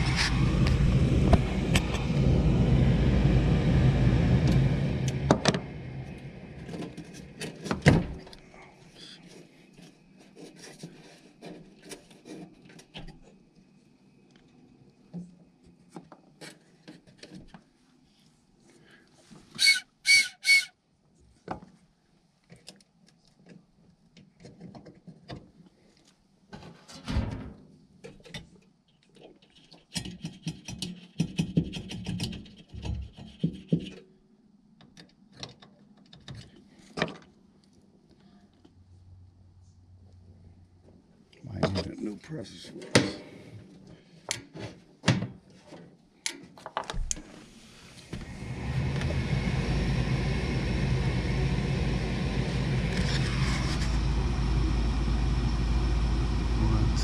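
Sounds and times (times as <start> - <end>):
furnace fan motor running: 0.0 - 8.4, 47.1 - 57.0.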